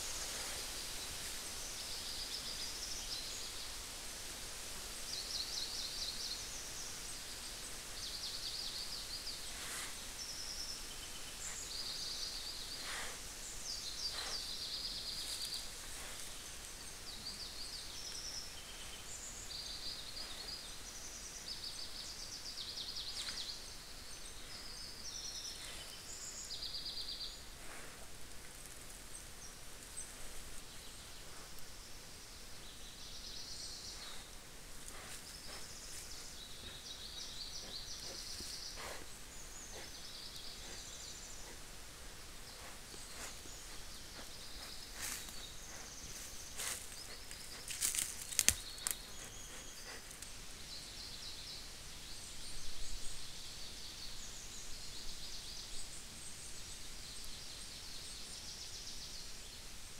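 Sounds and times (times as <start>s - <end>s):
faint steady hiss: 0.0s - 59.9s
songbirds trilling: 5.1s - 28.0s, 29.0s - 56.7s
snaps and rustles: 46.6s - 49.0s.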